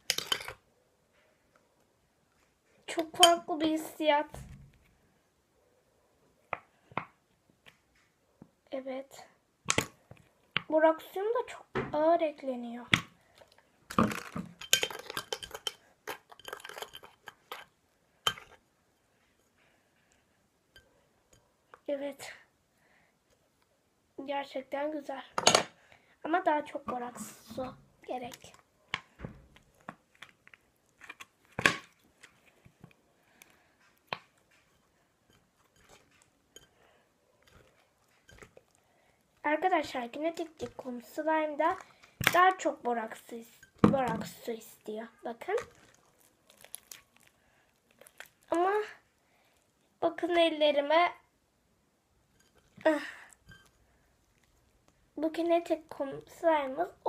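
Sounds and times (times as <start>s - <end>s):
metal spoon scraping glass bowl: 14.6s - 17.7s
sticky slime squishes: 26.4s - 36.7s, 37.4s - 49.1s.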